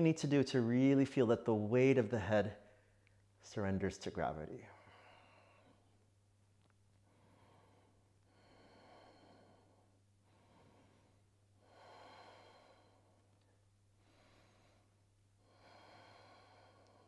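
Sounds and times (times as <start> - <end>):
person breathing slowly: 4.7 - 6.0, 7.0 - 17.0.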